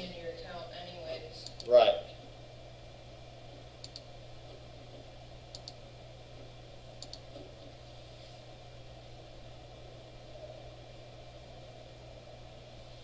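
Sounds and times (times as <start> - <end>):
steady low hum: 0.0 - 13.0
computer mouse double-clicks: 3.8 - 4.1, 5.5 - 5.8, 7.0 - 7.2.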